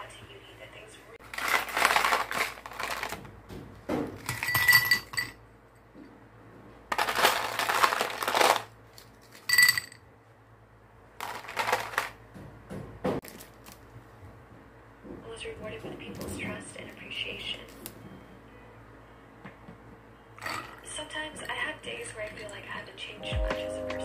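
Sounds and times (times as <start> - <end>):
ice cubes clinking in glass: 6.9 - 8.7, 20.4 - 20.8.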